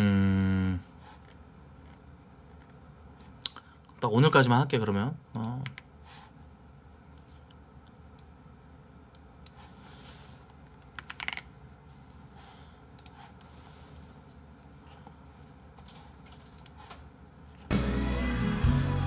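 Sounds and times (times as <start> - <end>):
low room hum: 0.0 - 19.0
keyboard typing: 15.8 - 17.0.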